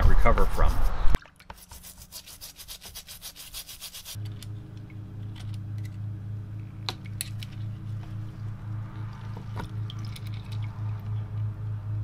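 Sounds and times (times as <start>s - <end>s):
paintbrush scrubbing steel plate: 0.5s - 4.4s
low hum: 4.2s - 12.0s.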